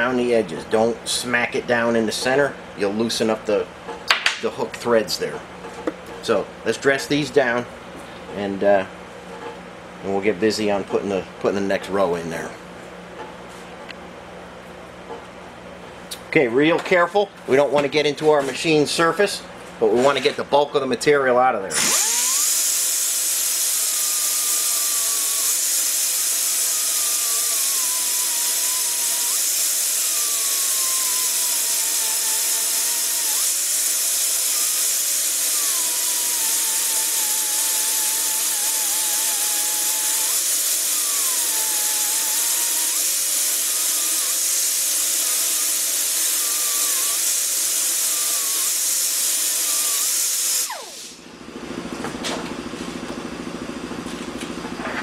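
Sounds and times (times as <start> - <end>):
grinder grinding cast iron: 21.7 - 53.2
grinder motor whine: 21.7 - 55.0.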